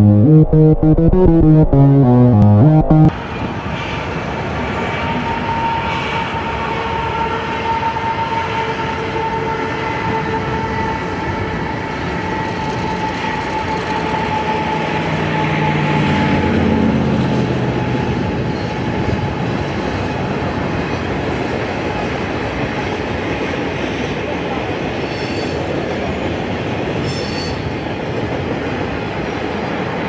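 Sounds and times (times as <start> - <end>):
high squeal of steel wheels: 5.1 - 8.6, 27.0 - 27.8.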